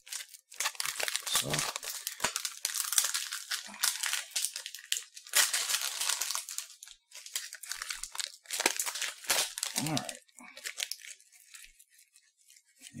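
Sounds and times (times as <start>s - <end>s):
plastic wrapper crinkling: 0.0s - 13.0s.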